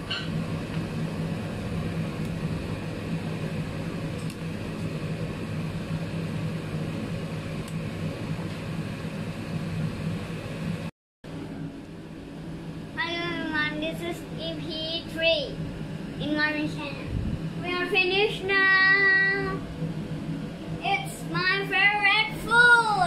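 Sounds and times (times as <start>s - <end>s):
low constant hum: 0.0s - 23.0s.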